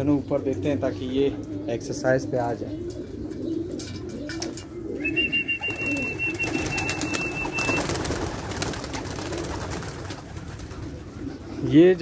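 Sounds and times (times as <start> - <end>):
pigeons cooing: 0.0 - 12.0
wing flaps: 5.2 - 11.3.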